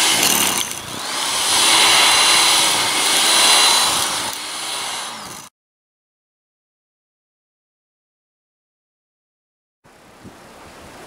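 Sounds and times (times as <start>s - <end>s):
electric snow blower motor whining: 0.0s - 5.5s.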